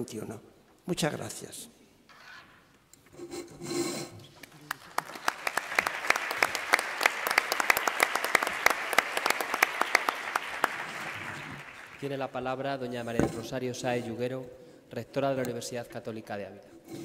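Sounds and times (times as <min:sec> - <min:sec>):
audience applauding: 0:04.4 - 0:12.3.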